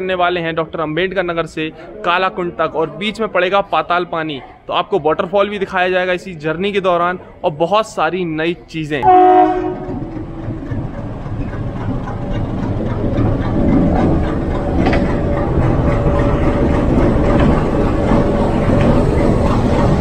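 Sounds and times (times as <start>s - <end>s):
diesel locomotive engine rumble: 9.0s - 20.0s.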